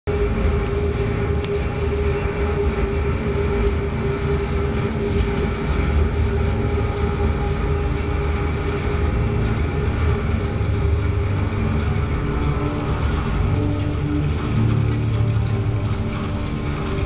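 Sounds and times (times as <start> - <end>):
low rumble: 0.1 - 17.0
mid-pitched hum: 0.1 - 17.0.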